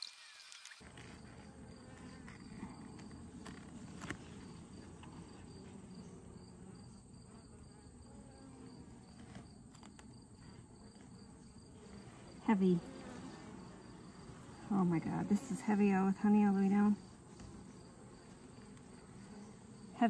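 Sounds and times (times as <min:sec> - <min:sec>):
bees buzzing: 0:00.0 - 0:20.0
hive frames clicking and knocking: 0:08.9 - 0:11.2.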